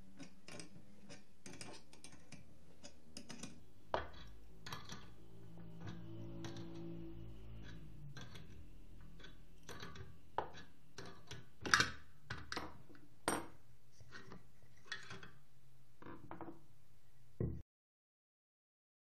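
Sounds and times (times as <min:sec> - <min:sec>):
metal clicks and clanks: 0:00.1 - 0:13.5.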